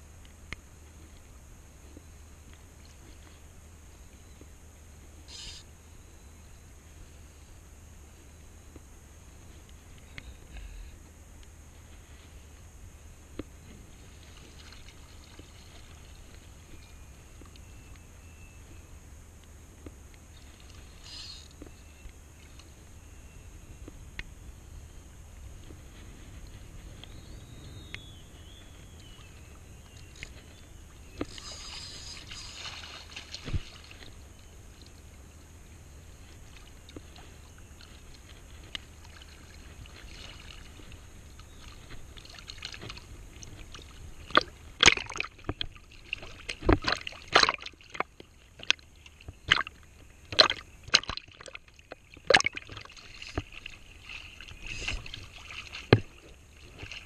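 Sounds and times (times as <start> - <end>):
seawater sloshing and lapping: 13.8 - 17.1, 29.0 - 35.0, 36.1 - 57.0
sharp water splashes: 31.4 - 34.1, 44.3 - 48.8, 49.4 - 57.0.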